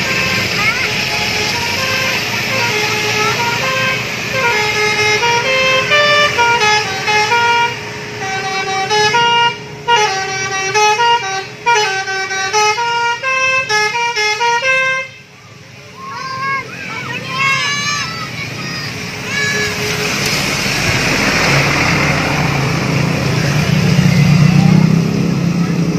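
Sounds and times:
musical air horns playing a tune: 0:00.0 - 0:15.3.

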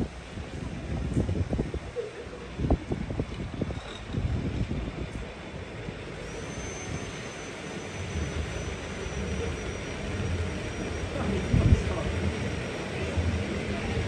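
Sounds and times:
cable and wheels rumbling on rails: 0:00.0 - 0:14.0
thin high whine: 0:06.2 - 0:14.0.

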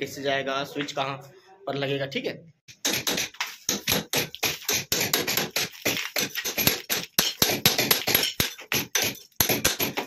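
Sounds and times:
hammer striking chisel on brick: 0:02.7 - 0:10.0.

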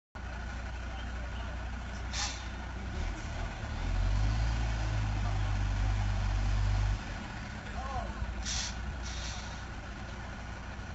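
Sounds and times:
truck diesel engine droning: 0:00.2 - 0:10.9
air brake hiss: 0:02.1 - 0:02.5, 0:08.4 - 0:09.7.

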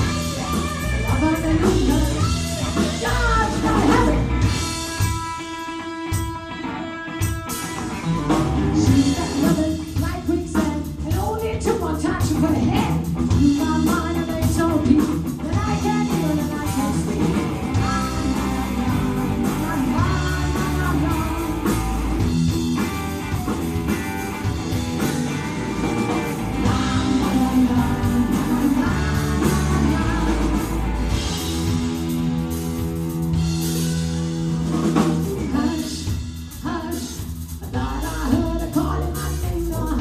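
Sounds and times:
woman singing: 0:00.0 - 0:05.1, 0:08.6 - 0:22.2, 0:26.6 - 0:31.0, 0:35.4 - 0:40.0
bass guitar: 0:00.0 - 0:40.0
drums: 0:00.0 - 0:40.0
electric guitar: 0:00.0 - 0:40.0.

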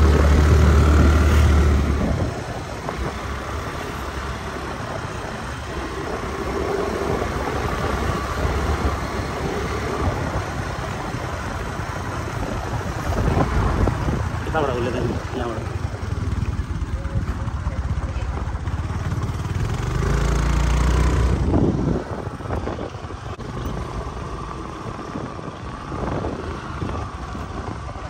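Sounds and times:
motor scooter engine rumble: 0:00.0 - 0:28.0
road noise: 0:00.0 - 0:28.0.

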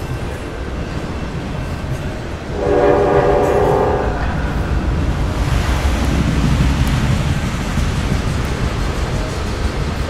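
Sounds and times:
train horn: 0:02.4 - 0:04.7
steady low rumble: 0:02.4 - 0:10.0.

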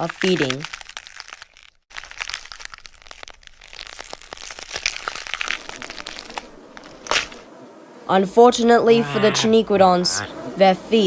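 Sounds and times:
animals chewing crunching: 0:00.0 - 0:07.5.

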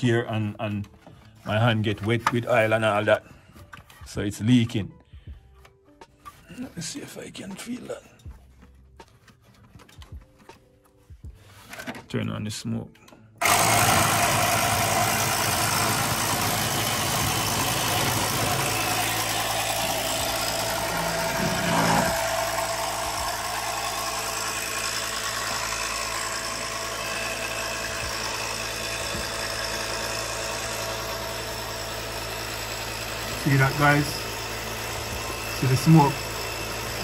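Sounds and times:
smoke machine pump humming: 0:13.4 - 0:37.0.

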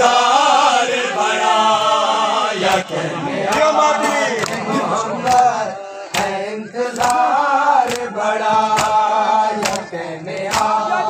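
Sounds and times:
men chanting together: 0:00.0 - 0:11.0
chest-beating slaps: 0:06.1 - 0:10.8.

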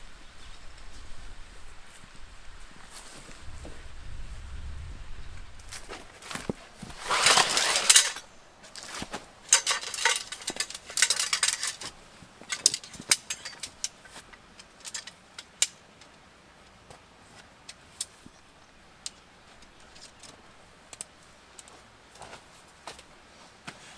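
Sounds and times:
canvas rustling: 0:05.6 - 0:15.1
metal tent poles clinking: 0:06.9 - 0:16.8, 0:17.4 - 0:22.4.

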